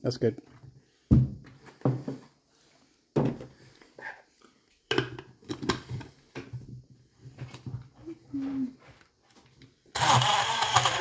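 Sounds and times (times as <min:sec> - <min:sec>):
kitchen items thunking on countertop: 0:01.1 - 0:02.2, 0:03.2 - 0:03.5.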